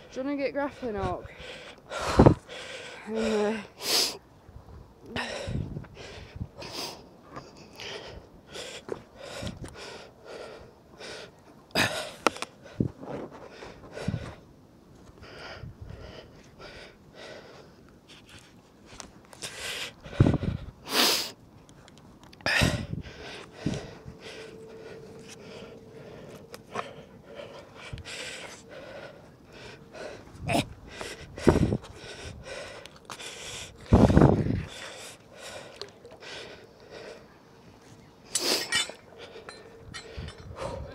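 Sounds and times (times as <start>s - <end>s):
person breathing hard: 0.8s - 4.2s, 5.1s - 14.4s, 19.4s - 21.4s, 22.4s - 37.4s, 38.3s - 40.9s.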